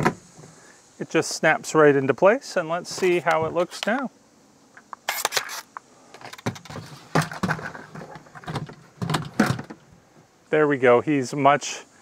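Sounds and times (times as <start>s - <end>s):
scraping rustle: 2.7s - 4.1s, 5.0s - 9.8s.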